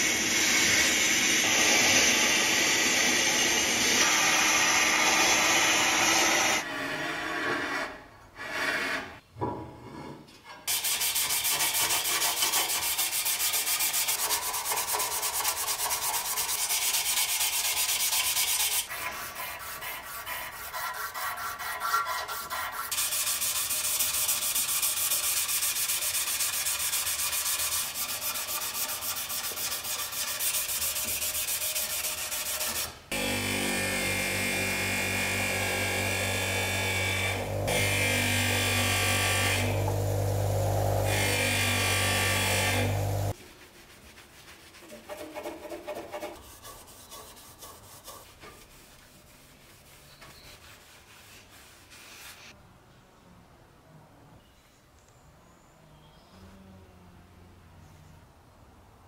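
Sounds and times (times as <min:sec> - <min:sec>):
abrasive pad scrubbing metal: 0:12.4 - 0:50.0
buffing wheel motor hum: 0:33.1 - 0:43.4.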